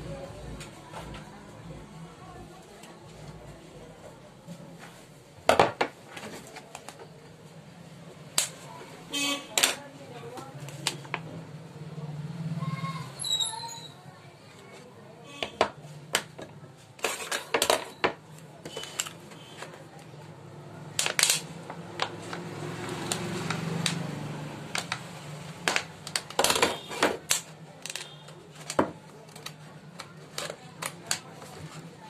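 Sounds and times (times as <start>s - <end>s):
plastic bottle crackling and clicking: 21.0s - 31.6s.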